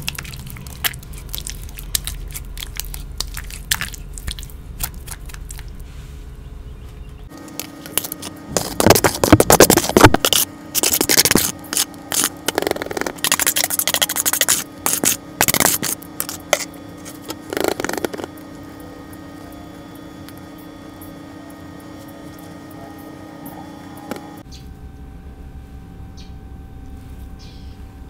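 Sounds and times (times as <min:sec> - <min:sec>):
wet paste scraped from plastic bowl: 0:07.6 - 0:18.3.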